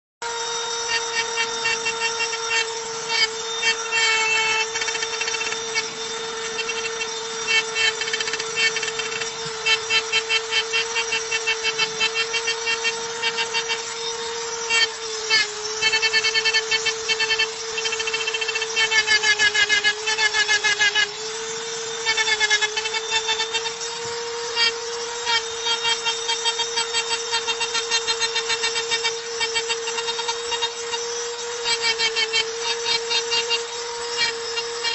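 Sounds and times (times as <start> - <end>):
drill bit scratching stone: 0.2 - 34.9
rotary tool motor whine: 0.2 - 34.9.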